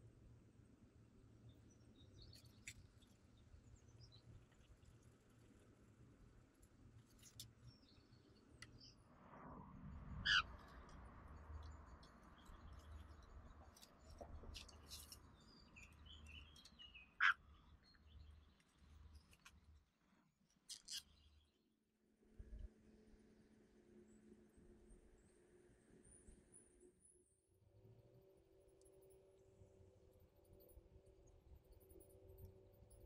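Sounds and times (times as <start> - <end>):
faint bird chirps: 10.2 - 10.9, 15.0 - 19.4
jays harsh calls: 10.3 - 10.5.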